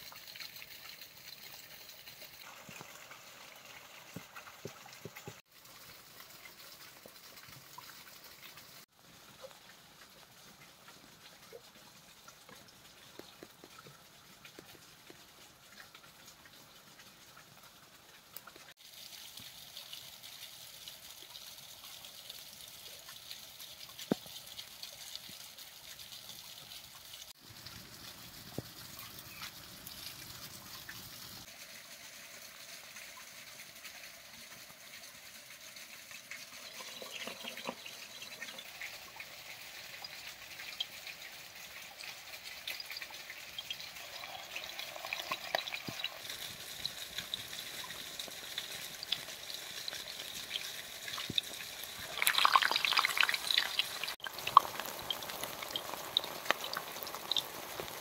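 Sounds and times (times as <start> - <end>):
sharp crackles of frying: 0.0 - 58.0
food sizzling in hot oil: 27.0 - 58.0.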